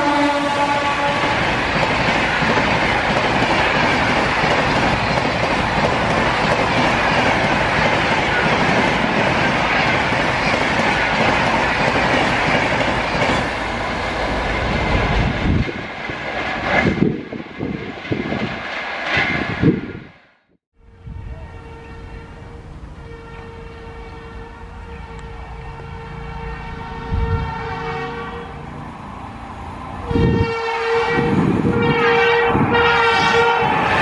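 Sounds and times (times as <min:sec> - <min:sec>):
train wheels rushing on rail: 0:00.0 - 0:20.4, 0:21.1 - 0:34.0
clickety-clack over rail joints: 0:01.2 - 0:13.6, 0:14.2 - 0:19.9.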